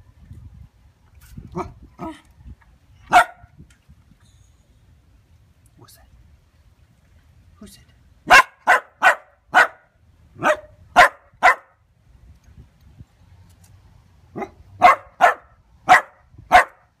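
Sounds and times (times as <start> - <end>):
dog barking: 3.1 - 3.5, 8.3 - 11.8, 14.4 - 16.9.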